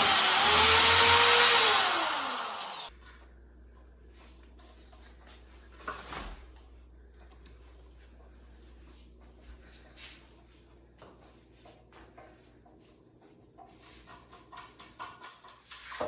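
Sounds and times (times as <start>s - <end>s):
electric drill spinning down: 0.0s - 2.9s.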